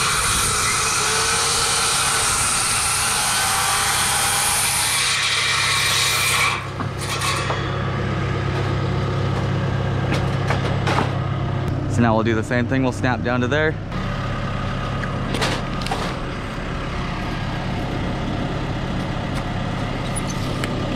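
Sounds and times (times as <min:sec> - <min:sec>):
circular saw cutting wood: 0:00.0 - 0:10.2
engine humming: 0:06.6 - 0:20.9.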